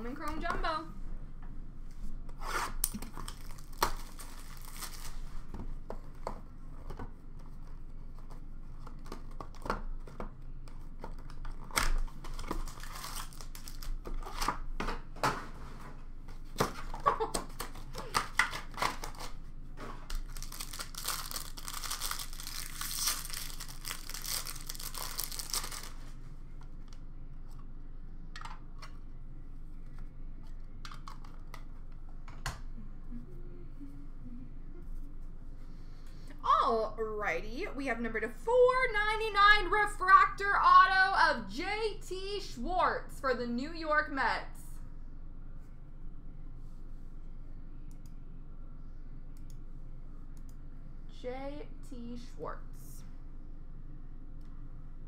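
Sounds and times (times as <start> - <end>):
card packs tearing: 2.7 - 5.3, 11.5 - 14.6, 17.5 - 19.4, 20.0 - 26.2
wrappers crinkling: 3.0 - 5.4, 12.0 - 14.4, 20.0 - 26.2.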